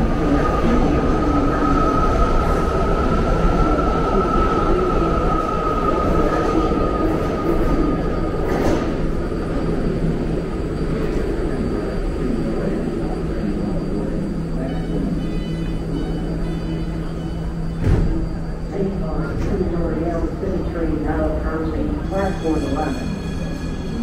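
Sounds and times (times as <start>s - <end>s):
train and station rumbling hum: 0.0s - 24.0s.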